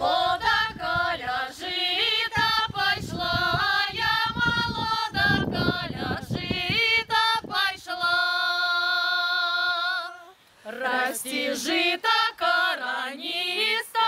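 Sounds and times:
women singing unaccompanied: 0.0s - 14.0s.

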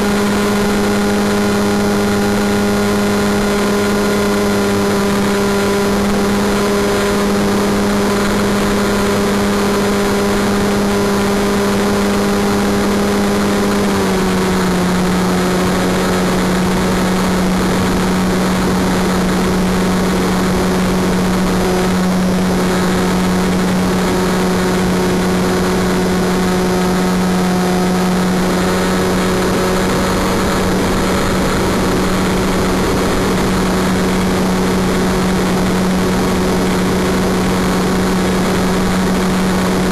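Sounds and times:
model airplane motor humming: 0.0s - 39.9s.

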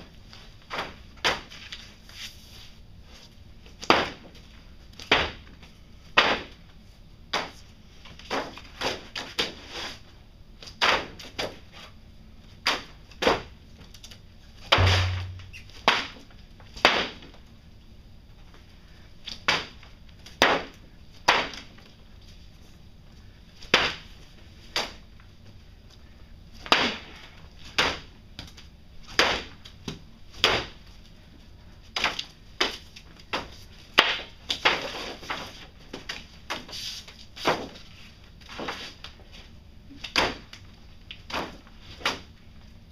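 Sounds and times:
sharp knocks on hard surface: 14.8s - 15.6s
heavy thump: 14.8s - 15.7s.

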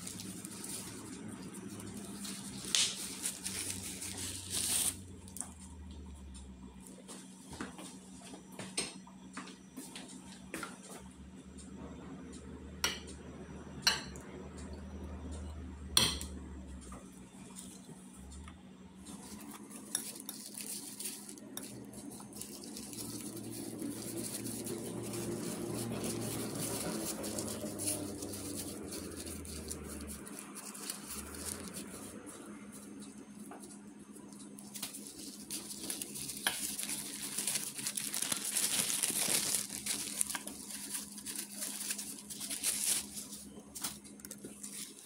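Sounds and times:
nuts rustling in wire mesh: 0.0s - 5.4s, 19.1s - 32.8s, 34.6s - 45.0s.

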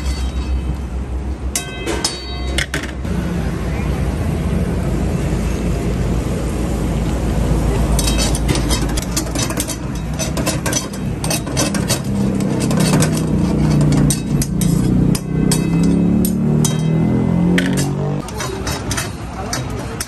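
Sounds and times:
gas burner rumble: 3.1s - 17.0s
metal ladle scraping a wok: 8.0s - 20.0s.

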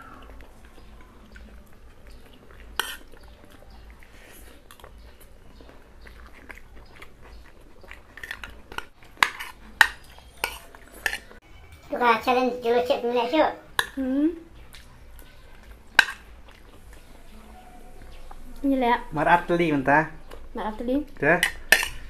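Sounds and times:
chewing and mouth sounds: 0.0s - 11.4s, 13.7s - 18.8s, 20.1s - 22.0s
spoon scraping on plate: 2.6s - 3.2s, 8.1s - 11.9s, 21.4s - 22.0s.

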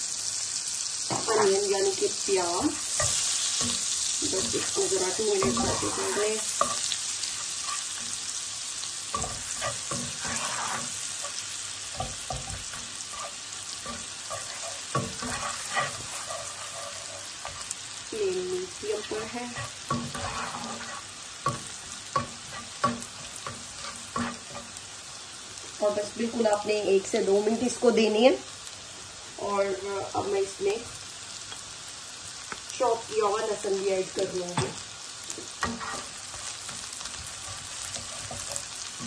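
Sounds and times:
onion sizzling in frying pan: 0.0s - 39.0s
spatula scraping pan: 1.1s - 24.8s, 34.2s - 39.0s.

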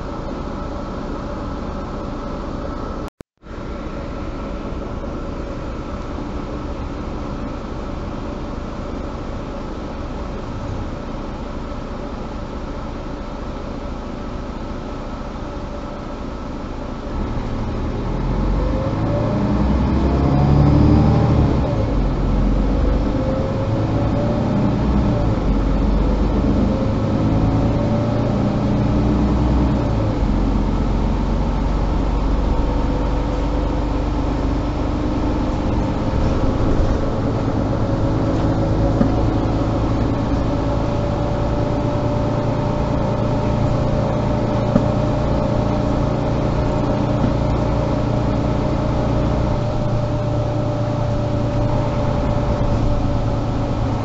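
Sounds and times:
diesel bus engine: 0.0s - 54.0s.

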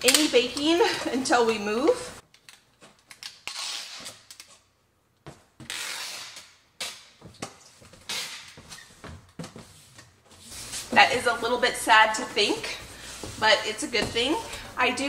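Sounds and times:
packing tape unrolling: 2.2s - 4.7s, 5.6s - 8.9s.

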